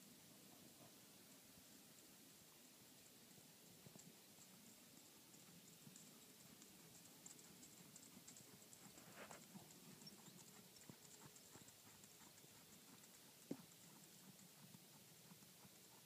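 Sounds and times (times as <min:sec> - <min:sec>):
faint hoofbeats on sand: 0:03.6 - 0:16.0.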